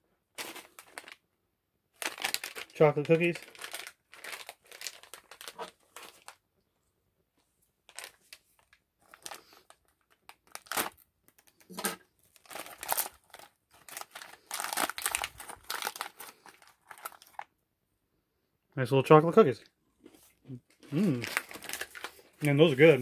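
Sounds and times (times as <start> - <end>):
foil pouch crinkling and tearing: 0.4 - 1.2, 2.0 - 6.4, 7.9 - 17.5, 20.9 - 23.0.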